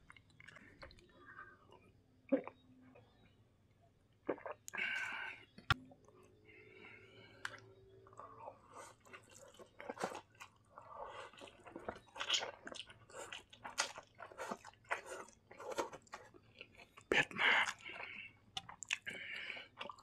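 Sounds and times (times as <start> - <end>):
person slurping and chewing noodles: 7.4 - 20.0.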